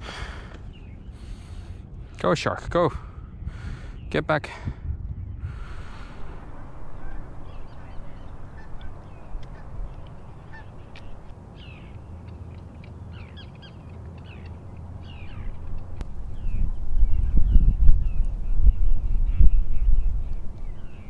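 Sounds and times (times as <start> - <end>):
birds chirping: 0.0 - 2.0, 3.1 - 4.4, 5.2 - 21.0
steady low rumble: 4.7 - 21.0.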